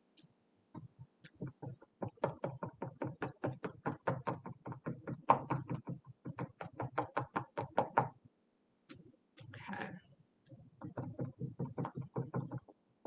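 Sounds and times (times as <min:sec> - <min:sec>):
cotton swab tapping on canvas: 0:00.8 - 0:08.2, 0:10.8 - 0:12.8.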